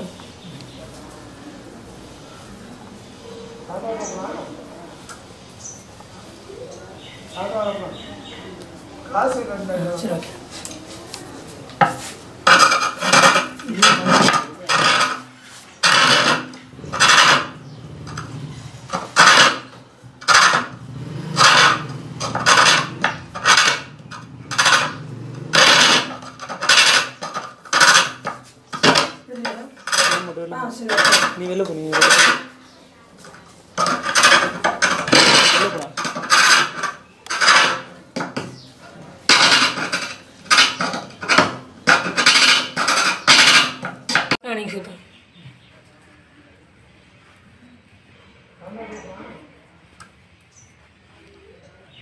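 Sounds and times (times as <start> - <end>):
chisel scraping wood on a lathe: 11.8 - 18.3, 18.9 - 20.8, 21.4 - 29.1, 29.8 - 32.5, 33.8 - 38.7.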